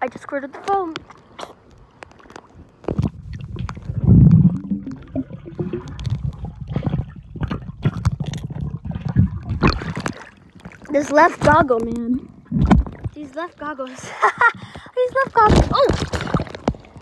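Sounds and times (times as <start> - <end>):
muffled underwater rumbling and gurgling: 2.6 - 13.6
air bubbles: 2.8 - 13.3, 14.4 - 17.0.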